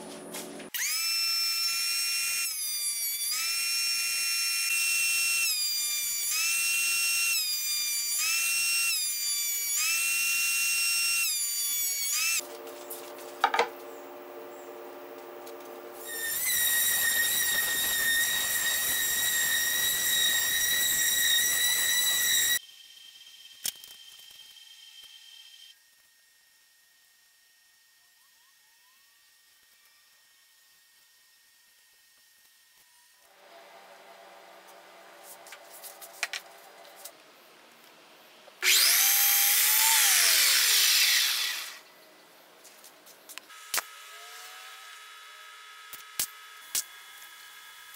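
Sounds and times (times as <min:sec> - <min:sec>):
miter saw cutting: 0:00.7 - 0:13.0, 0:15.7 - 0:22.6, 0:38.6 - 0:41.9, 0:43.5 - 0:47.9
low steady hum: 0:12.4 - 0:16.0
orbital sander whining: 0:15.7 - 0:22.6, 0:38.6 - 0:41.9.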